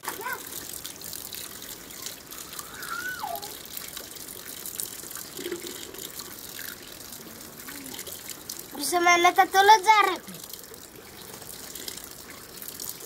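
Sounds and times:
running water splashing: 0:00.0 - 0:13.0.

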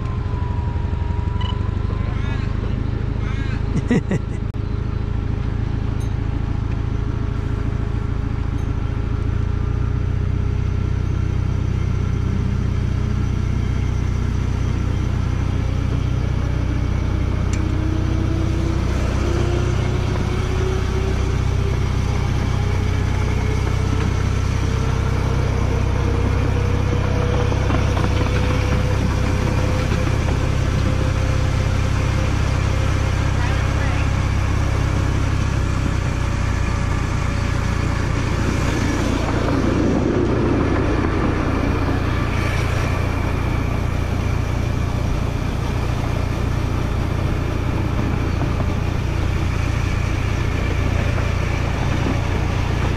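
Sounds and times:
miniature train running with whine: 0:10.9 - 0:52.9.

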